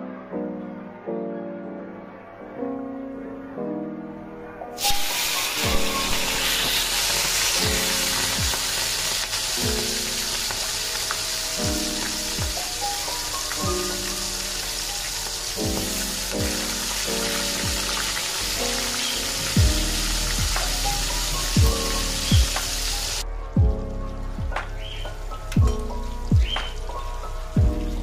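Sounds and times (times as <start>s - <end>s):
hot oil sizzling in a wok: 4.8s - 23.2s, 24.2s - 28.0s
background music with low beat: 5.0s - 28.0s.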